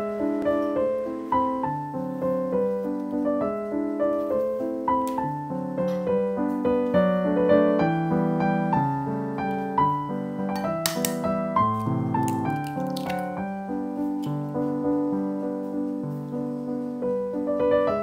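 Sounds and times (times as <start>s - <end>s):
gentle piano melody: 0.0s - 18.0s
crackle of clicks: 5.0s - 6.6s, 10.5s - 13.4s, 14.1s - 14.6s.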